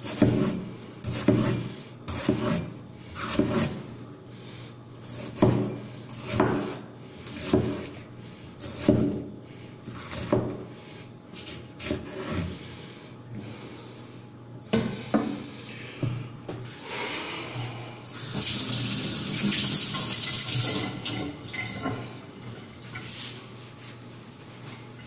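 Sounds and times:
cleaver chopping on wooden board: 5.3s - 5.7s, 6.3s - 6.8s.

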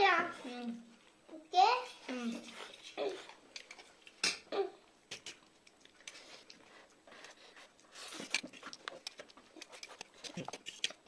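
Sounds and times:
eating noodles: 5.1s - 11.0s.

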